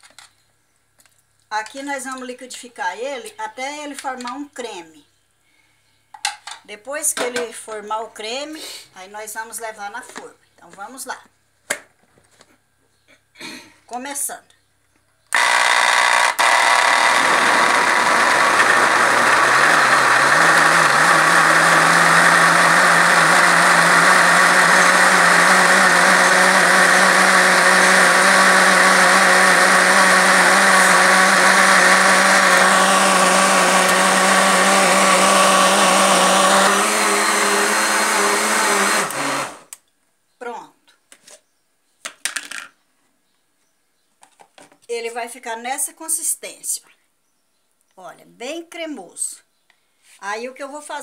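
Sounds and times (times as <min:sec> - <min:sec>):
electric blender motor running: 0:15.3 - 0:39.7.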